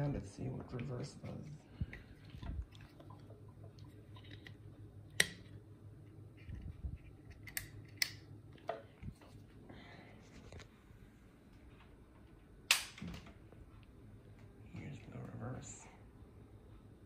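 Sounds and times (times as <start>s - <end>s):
ceiling fan humming: 0.0s - 17.0s.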